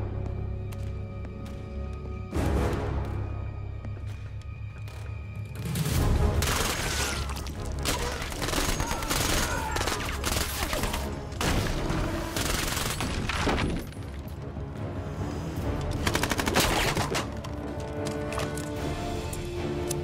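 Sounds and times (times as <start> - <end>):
rapid gunfire: 16.0 - 17.2.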